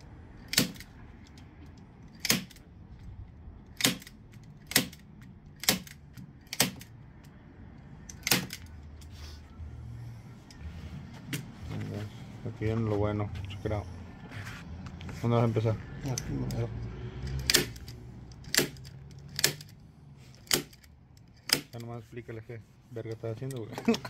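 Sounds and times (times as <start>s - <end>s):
staple gun snapping: 17.4s - 19.7s, 20.4s - 21.8s.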